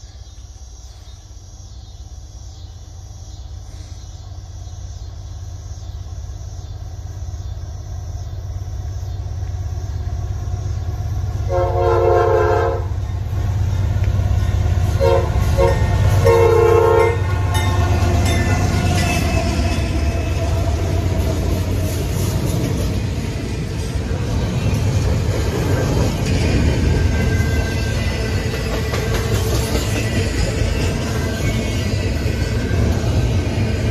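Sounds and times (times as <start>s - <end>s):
locomotive rumble: 3.0s - 33.9s
train air horn blasts: 11.5s - 13.0s, 14.9s - 21.3s
wheels clattering on rails: 13.0s - 33.9s.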